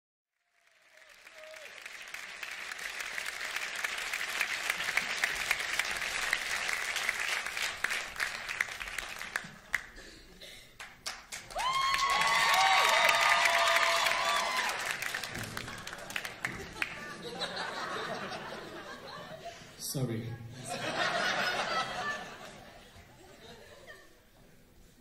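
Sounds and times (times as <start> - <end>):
audience applause: 0.3 - 10.0, 10.8 - 19.2.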